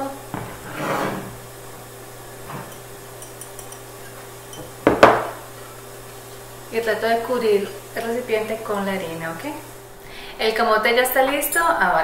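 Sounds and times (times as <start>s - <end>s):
glass knocking on glass: 4.6s - 5.3s.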